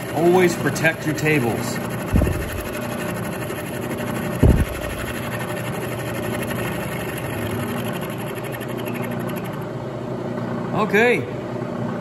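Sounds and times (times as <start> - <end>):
milling machine cutting metal: 0.0 - 9.6
loud low thump: 2.1 - 2.8, 4.4 - 5.2.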